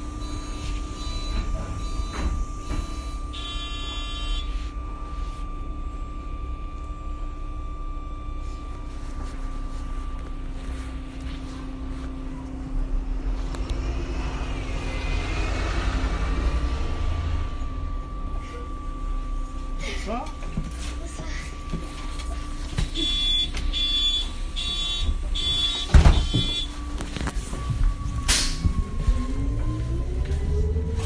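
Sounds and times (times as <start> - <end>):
bus engine rumble: 0.0 - 31.0
electronic buzzer tone: 0.1 - 6.2, 23.0 - 26.8.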